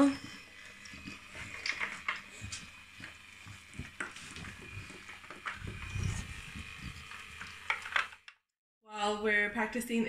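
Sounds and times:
dog crunching dry food: 0.5s - 8.1s.

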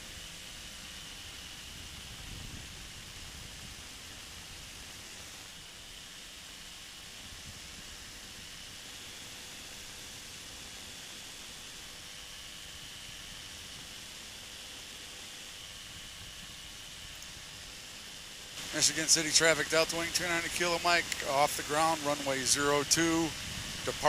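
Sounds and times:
aircraft engine noise: 0.0s - 24.0s
rushing airflow: 18.6s - 24.0s.

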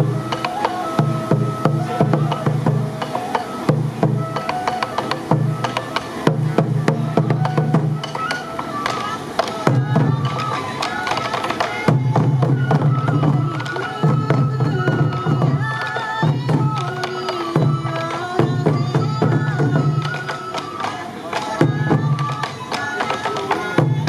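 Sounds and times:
taiko drum strikes: 0.0s - 16.9s
bamboo flute melody: 0.0s - 24.0s.

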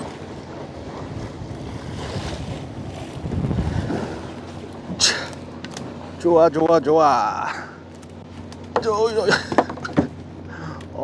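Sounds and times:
water washing along boat hull: 0.0s - 11.0s
wind buffeting microphone: 0.4s - 5.0s.

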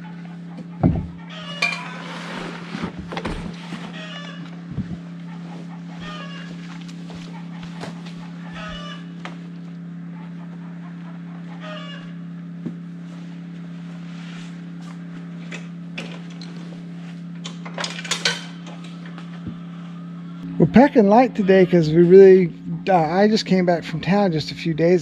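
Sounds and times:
chicken calls: 0.0s - 2.4s, 3.6s - 9.3s, 10.1s - 12.3s, 18.6s - 23.2s
steady low hum: 0.0s - 25.0s
chickens clucking: 3.6s - 9.2s, 10.1s - 12.2s, 18.5s - 24.2s.

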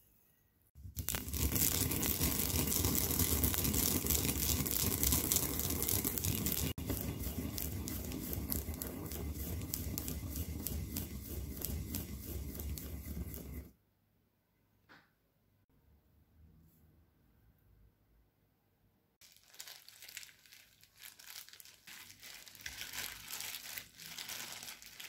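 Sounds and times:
pestle grinding seeds in mortar: 0.8s - 13.7s.

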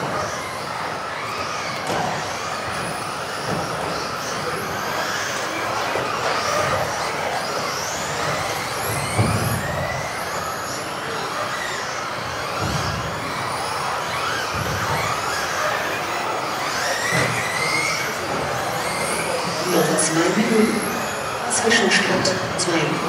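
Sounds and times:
electric motors whining: 0.0s - 23.0s.

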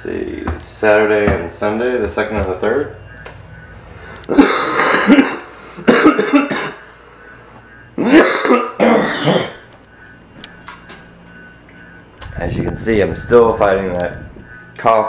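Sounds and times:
man coughing loudly: 4.3s - 7.0s, 8.0s - 9.7s.

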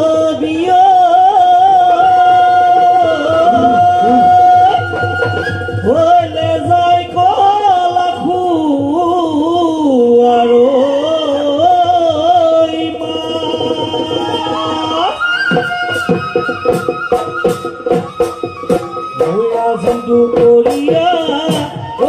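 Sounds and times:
fast percussion strikes: 3.4s - 4.8s
high wind pipe note: 3.5s - 4.6s.

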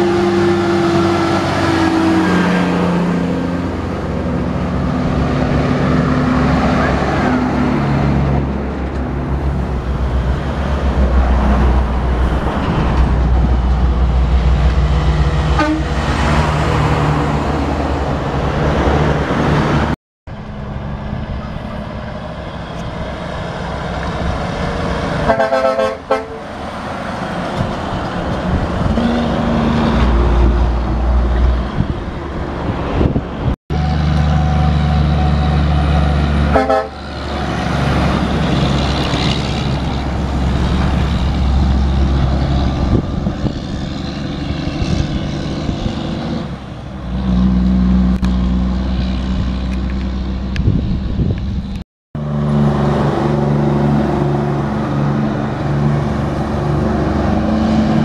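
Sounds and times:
diesel trucks passing: 0.0s - 58.0s
truck air horn: 15.5s - 16.1s, 25.2s - 26.6s, 33.7s - 37.1s.

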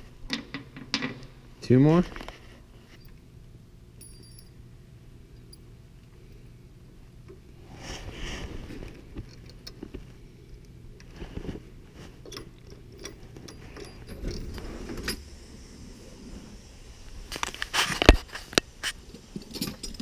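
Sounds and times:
rustling: 7.6s - 10.3s, 11.0s - 12.3s.

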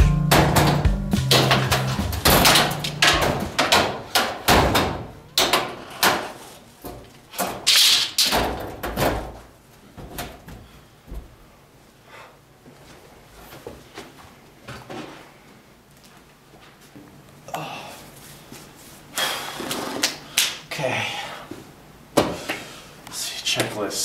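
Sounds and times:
door banging and thudding: 0.0s - 10.5s.

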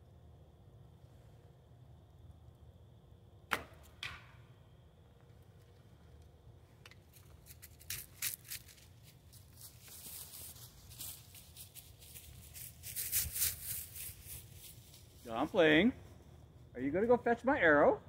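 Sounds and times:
light clicks of arrow handling: 5.2s - 8.4s
scratchy rustling: 7.4s - 15.3s.

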